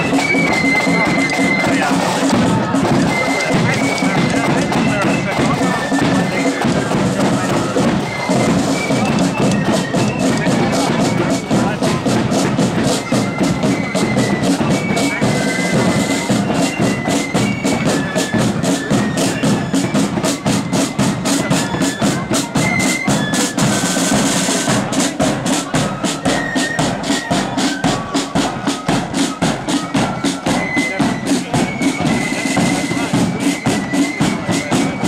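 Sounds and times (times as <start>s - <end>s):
flute melody: 0.0s - 35.0s
side drum strokes: 0.0s - 35.0s.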